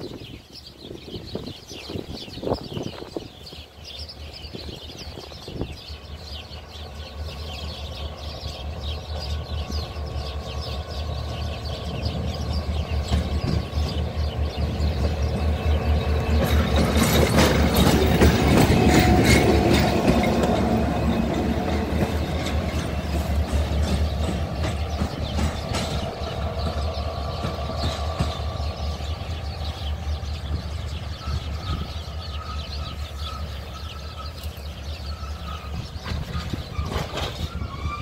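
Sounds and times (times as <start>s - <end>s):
diesel locomotive engine droning: 2.0s - 38.0s
wheels clattering over rail joints: 12.6s - 30.6s, 31.3s - 38.0s.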